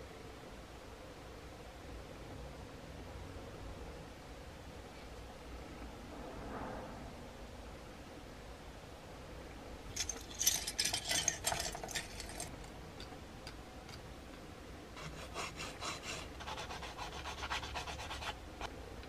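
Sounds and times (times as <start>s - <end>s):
sanding sponge rubbing plastic: 15.0s - 18.4s.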